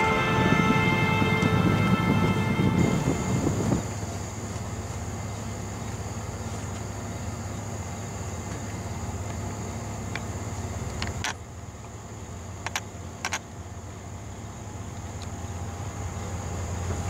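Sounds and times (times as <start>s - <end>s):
low engine hum: 0.0s - 17.0s
crickets trilling: 3.4s - 17.0s.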